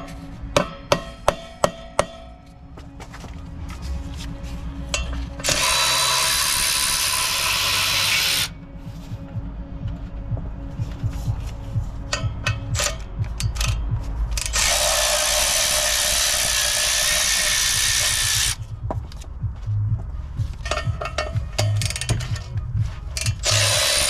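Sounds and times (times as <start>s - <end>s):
hand ratchet clicking: 5.4s - 8.5s, 12.1s - 18.6s, 20.6s - 24.0s
air ratchet hissing: 14.4s - 18.6s, 23.2s - 24.0s.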